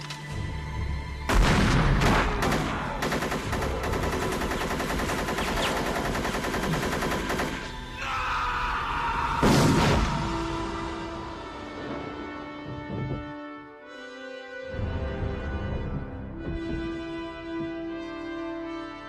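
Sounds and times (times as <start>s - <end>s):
rapid gunfire volley: 1.3s - 7.7s
heavy gunshots: 1.3s - 7.8s.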